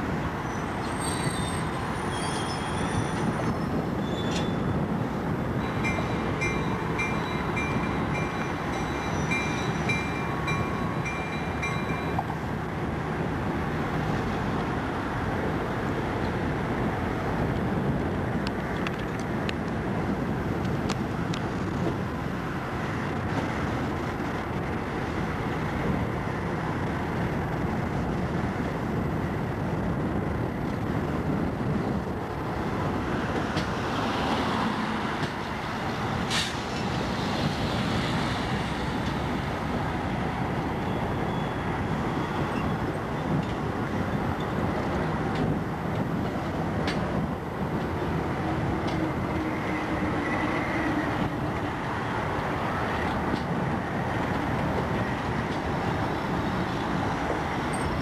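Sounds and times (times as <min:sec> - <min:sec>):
train wheels rumbling on rails: 0:00.0 - 0:58.0
high ringing: 0:05.6 - 0:12.2.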